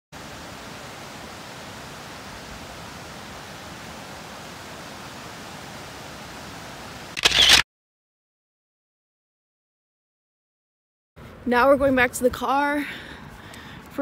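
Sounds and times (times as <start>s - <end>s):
waterfall rushing over rocks: 0.2s - 7.2s.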